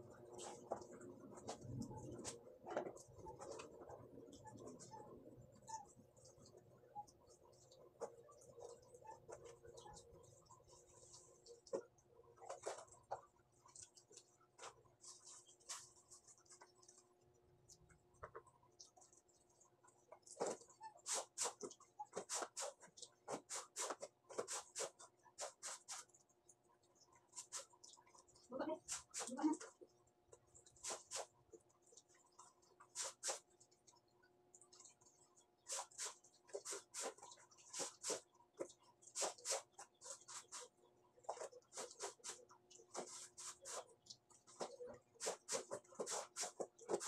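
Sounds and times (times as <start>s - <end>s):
wet clothes scrubbed by hand: 20.2s - 26.2s, 30.7s - 33.7s, 35.6s - 47.0s.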